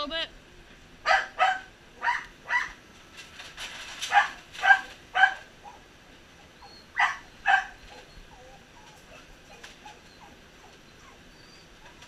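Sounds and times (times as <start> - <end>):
small dog yapping: 1.1 - 2.8, 4.0 - 5.8, 6.7 - 12.0.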